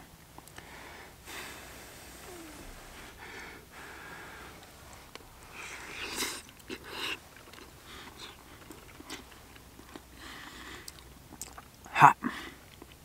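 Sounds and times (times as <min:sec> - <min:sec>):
breathy bursts: 0:00.6 - 0:07.2
biting and chewing: 0:04.6 - 0:11.9, 0:12.5 - 0:13.0
small wet mouth clicks: 0:10.8 - 0:11.9.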